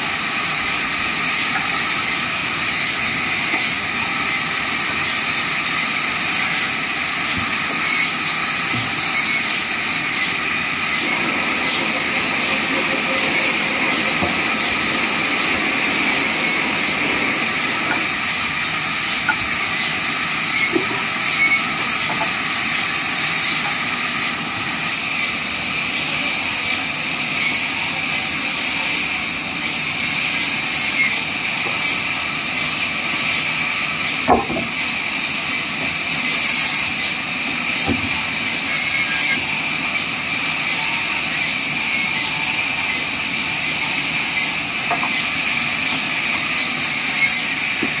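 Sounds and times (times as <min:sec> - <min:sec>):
high whine of saw: 0:00.0 - 0:34.2, 0:35.0 - 0:48.0
band saw cutting wood: 0:01.3 - 0:22.6, 0:44.0 - 0:48.0.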